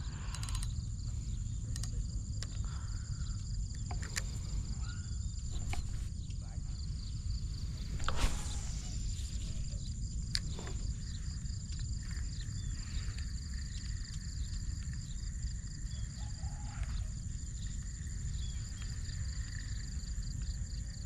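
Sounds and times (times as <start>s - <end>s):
low rumble: 0.0s - 16.2s
insects trilling: 0.0s - 21.0s
scattered clicks: 0.2s - 0.8s, 1.7s - 2.7s
rustling swish: 7.6s - 9.8s.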